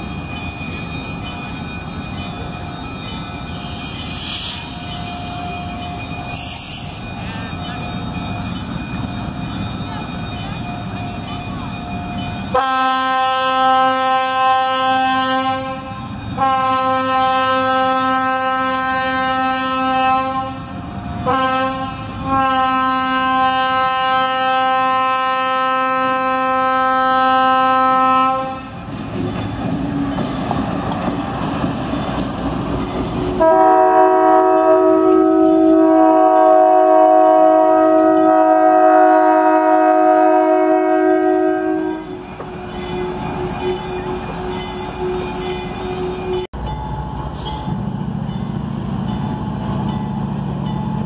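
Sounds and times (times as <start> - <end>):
locomotive bell ringing: 0.0 - 51.0
locomotive air horn: 12.5 - 28.8, 33.4 - 42.2.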